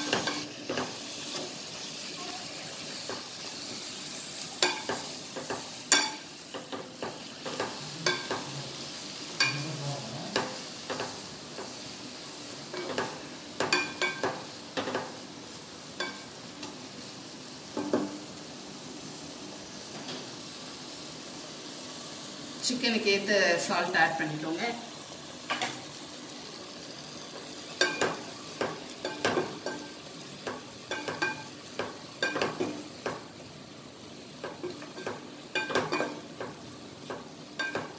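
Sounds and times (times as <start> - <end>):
chicken sizzling in a pot: 0.0 - 37.9.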